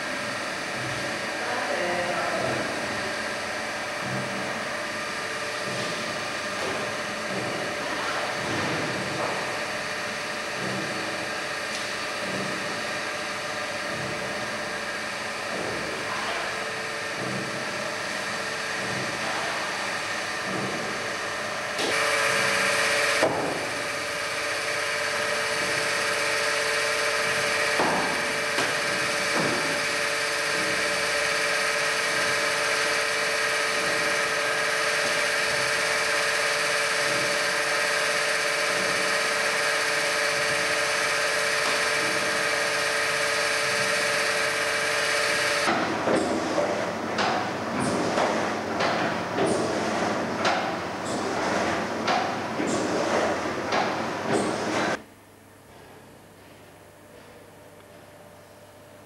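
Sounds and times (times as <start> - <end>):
machine hum with whine: 0.0 - 59.0.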